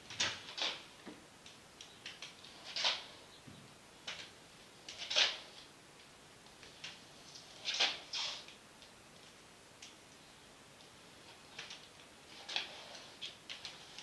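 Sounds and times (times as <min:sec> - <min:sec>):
small clicks and taps: 0:08.8 - 0:10.2.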